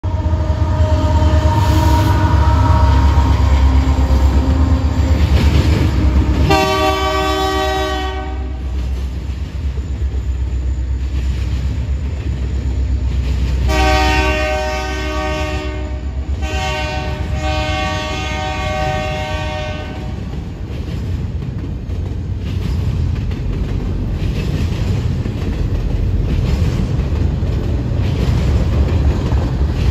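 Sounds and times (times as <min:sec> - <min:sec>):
train air horn blasts: 0:00.0 - 0:05.2, 0:05.8 - 0:08.8, 0:13.6 - 0:20.3
freight train rumbling: 0:00.0 - 0:29.9.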